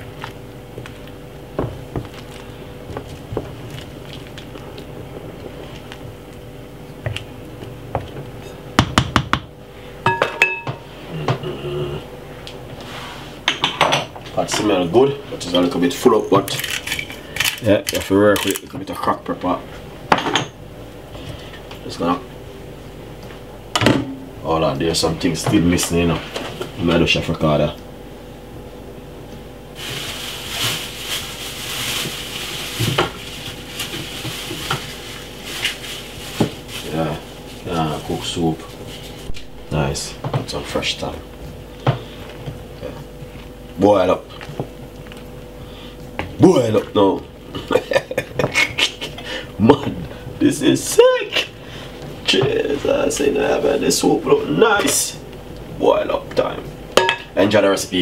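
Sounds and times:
faint steady hum: 0.0 - 58.0
cookware and utensils clinking: 10.1 - 10.8.

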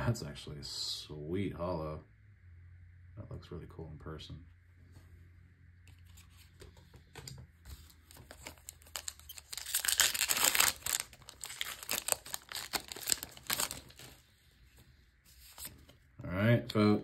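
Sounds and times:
foil wrapper tearing and crinkling: 8.1 - 14.2.

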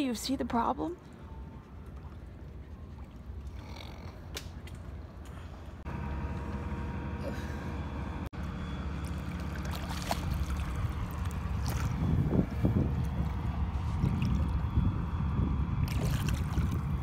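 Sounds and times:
steady low rumble: 0.9 - 17.0
water sloshing and splashing: 8.8 - 14.9, 15.8 - 17.0.

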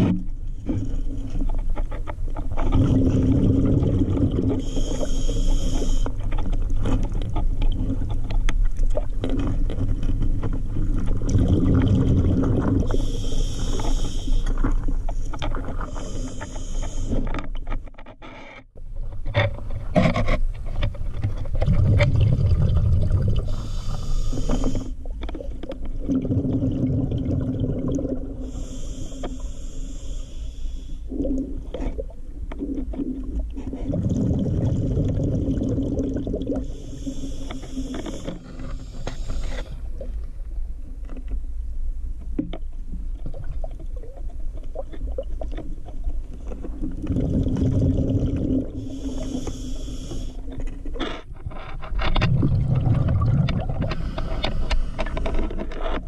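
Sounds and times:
exhaled bubbles rumbling: 0.0 - 5.0, 6.3 - 16.0, 20.9 - 28.8, 31.1 - 37.1, 43.0 - 49.4, 50.7 - 56.0
faint clicks and scrapes: 0.0 - 26.8, 28.0 - 34.2, 36.5 - 56.0
hissing inhale through regulator: 4.4 - 6.3, 12.8 - 17.5, 23.4 - 25.0, 28.3 - 31.2, 36.5 - 40.1, 47.2 - 50.7, 53.8 - 55.7.

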